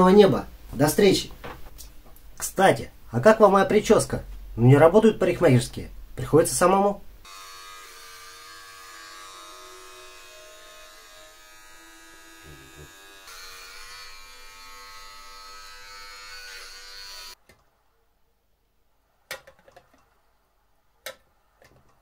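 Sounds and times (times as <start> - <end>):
electric hair clippers buzzing: 7.2 - 17.4.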